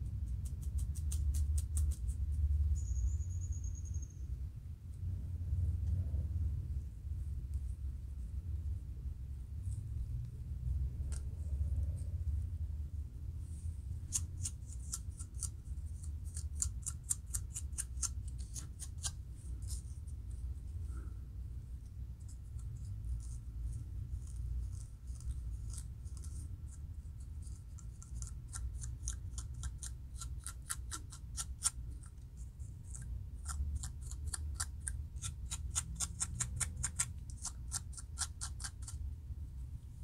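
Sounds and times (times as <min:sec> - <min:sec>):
scratching scalp with plastic tool: 0:00.0 - 0:02.4, 0:13.9 - 0:21.1, 0:21.8 - 0:39.1
low rumble: 0:04.4 - 0:14.0.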